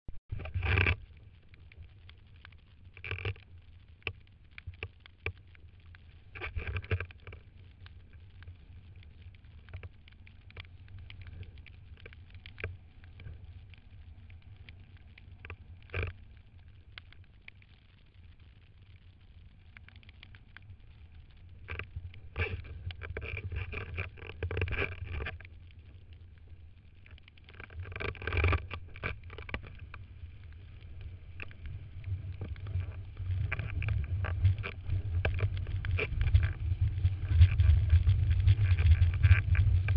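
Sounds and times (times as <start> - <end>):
wind rumble: 27.7 - 39.9.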